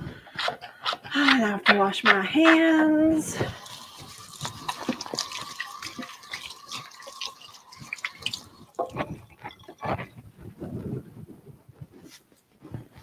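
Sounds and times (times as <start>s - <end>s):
tap water splashing on hands: 3.5s - 9.2s.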